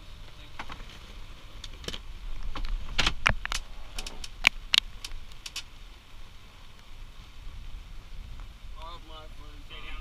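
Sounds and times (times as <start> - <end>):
sharp irregular clicks and taps: 3.3 - 5.7.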